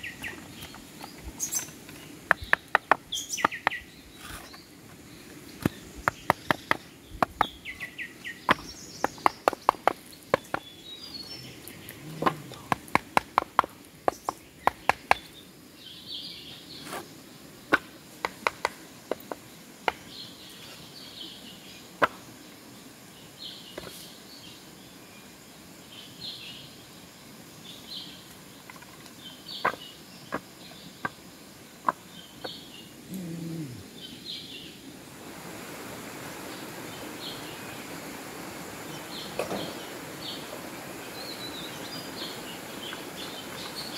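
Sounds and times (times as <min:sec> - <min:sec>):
birds chirping: 0:00.0 - 0:18.5, 0:27.6 - 0:35.0, 0:36.4 - 0:43.9.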